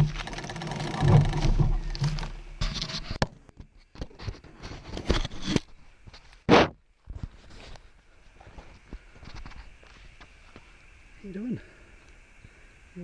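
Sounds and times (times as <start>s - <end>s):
small clicks and scrapes: 0.0s - 6.5s
camera handling rubbing: 1.9s - 3.3s.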